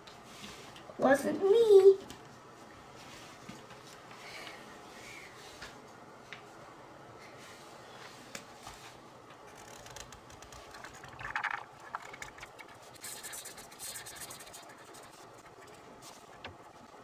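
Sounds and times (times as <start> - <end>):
marker scratching on paper: 12.6 - 17.0.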